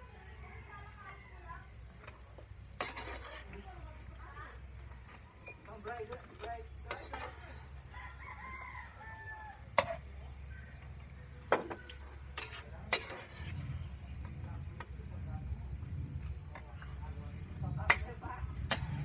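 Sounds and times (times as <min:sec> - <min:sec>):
food frying: 0:00.0 - 0:19.0
utensil scraping in a pan: 0:01.6 - 0:19.0
utensil clinking against pan: 0:05.4 - 0:07.7, 0:12.3 - 0:13.6
rooster crowing faintly: 0:07.0 - 0:10.9.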